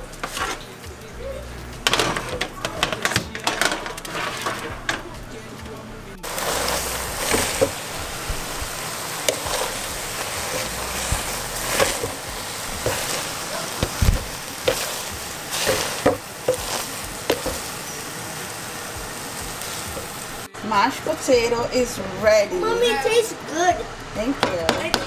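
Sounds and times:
steady hiss: 0:00.0 - 0:25.0
potato masher knocks and squishes: 0:09.3 - 0:17.8.

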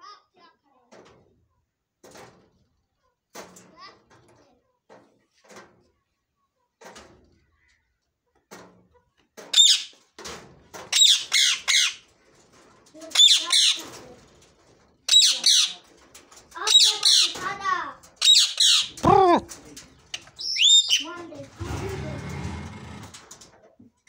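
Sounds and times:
parakeet screeching: 0:09.6 - 0:09.9, 0:10.9 - 0:12.0, 0:13.1 - 0:13.8, 0:15.1 - 0:15.8, 0:16.7 - 0:17.4, 0:18.2 - 0:19.0, 0:20.4 - 0:21.0.

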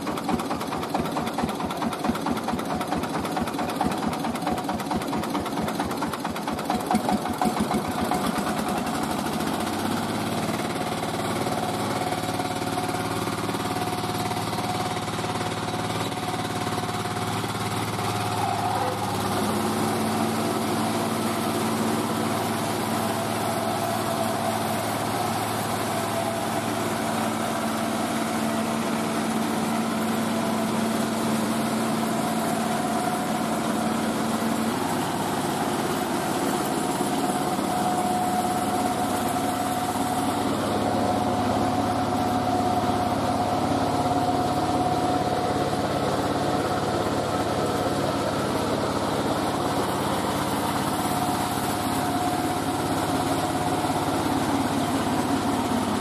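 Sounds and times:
rice mill engine running: 0:00.0 - 0:56.0
machinery whine: 0:34.6 - 0:46.0.

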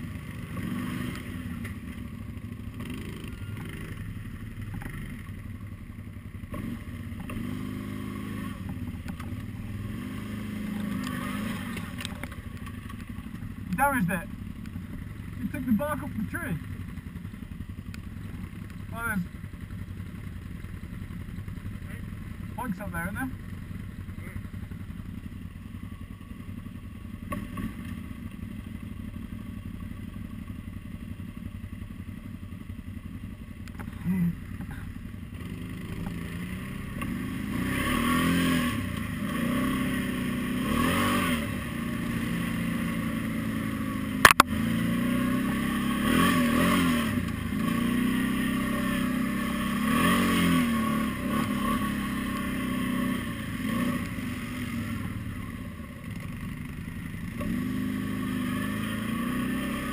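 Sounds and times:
quad engine revving: 0:00.0 - 0:02.0, 0:02.6 - 0:05.3, 0:06.4 - 0:17.0, 0:27.3 - 0:28.0, 0:33.6 - 0:59.9.

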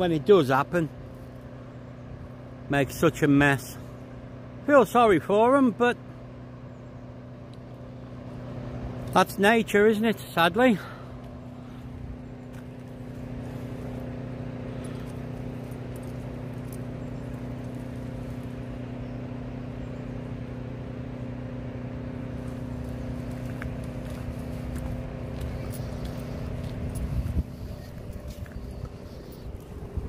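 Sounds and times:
distant engine pump droning: 0:00.0 - 0:30.0
footsteps on dirt path: 0:10.8 - 0:18.9, 0:22.2 - 0:30.0
wind on microphone: 0:26.8 - 0:30.0.

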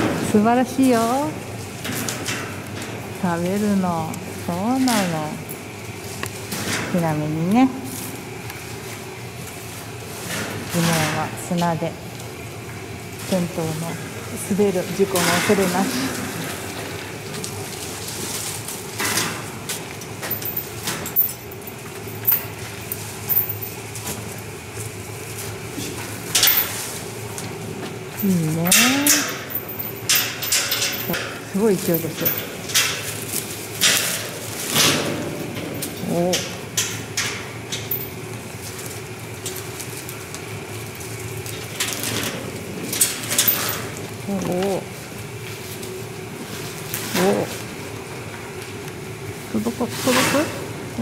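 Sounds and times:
leafy branches rustling: 0:14.6 - 0:19.6.

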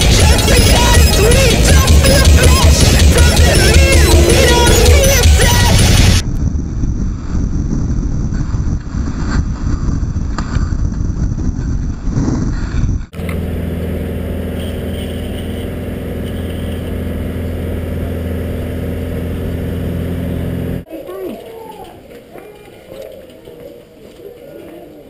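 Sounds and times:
car engine hum inside cabin: 0:00.0 - 0:06.5, 0:13.1 - 0:20.9
longboard wheels rumbling on asphalt: 0:00.0 - 0:20.9
wind buffeting microphone: 0:06.2 - 0:13.2.

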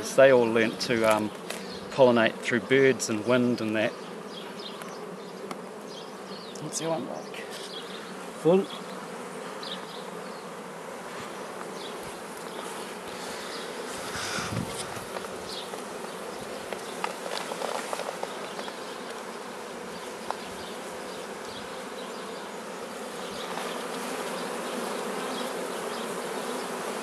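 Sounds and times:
bees buzzing: 0:00.0 - 0:27.0
brush sweeping scratchy strokes: 0:11.0 - 0:15.4.

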